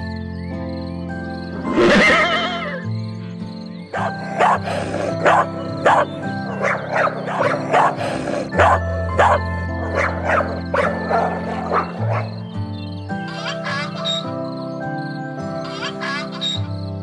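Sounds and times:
background music with held chords: 0.0 - 17.0
horse whinny: 1.6 - 2.9.

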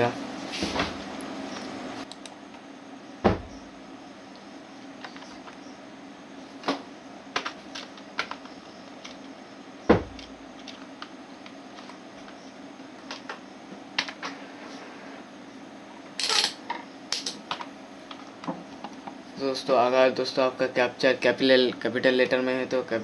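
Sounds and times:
faint steady hum: 0.0 - 23.0
heavier knock: 3.2 - 3.6.

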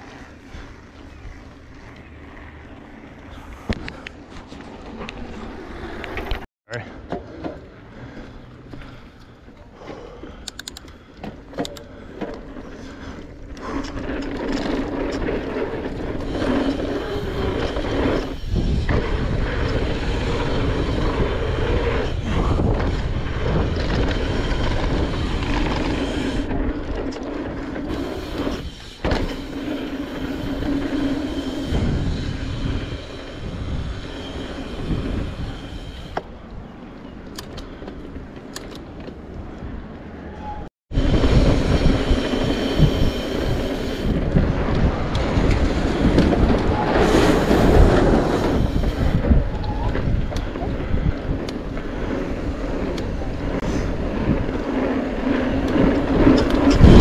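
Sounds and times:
bike tyres rumbling over dirt: 11.9 - 36.2, 40.9 - 57.0.

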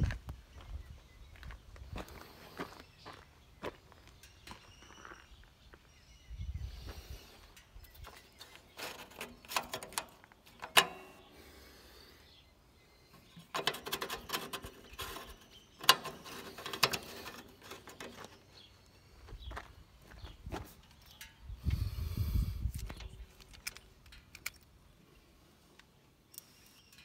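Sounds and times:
handling clicks and rustling: 7.6 - 11.2, 13.2 - 18.7, 22.7 - 24.8.

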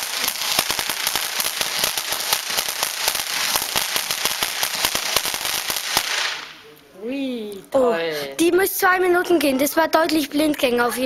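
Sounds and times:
fountain firework hissing: 0.0 - 6.6
rapid crackling pops: 0.0 - 6.6.

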